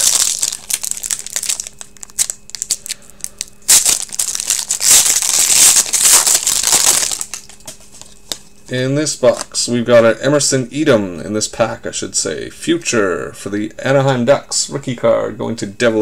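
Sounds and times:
foil wrapper crinkling: 0.0 - 8.3.

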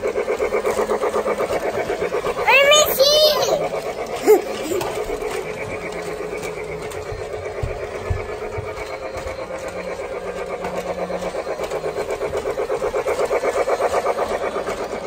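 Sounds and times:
toy train whirring clatter: 0.0 - 15.0.

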